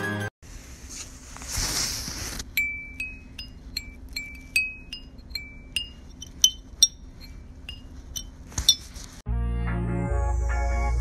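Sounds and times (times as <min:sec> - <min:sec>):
metal fins flicked ringing: 0:02.6 - 0:08.9.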